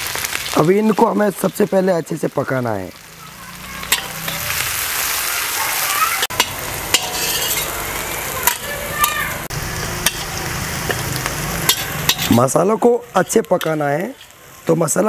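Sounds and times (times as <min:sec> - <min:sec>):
vegetables sizzling in hot oil: 0:00.0 - 0:15.0
utensil scraping pan: 0:06.2 - 0:07.8, 0:10.0 - 0:12.5, 0:13.2 - 0:14.4.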